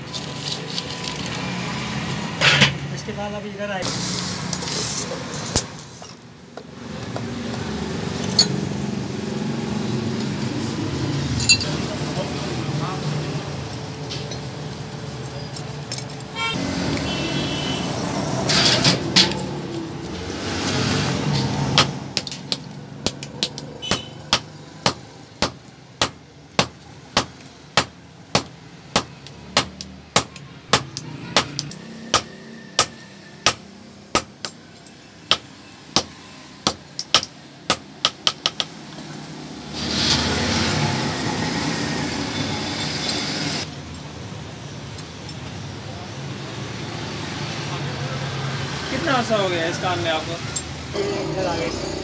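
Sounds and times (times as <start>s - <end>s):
hammer striking hot iron on anvil: 23.0s - 34.6s.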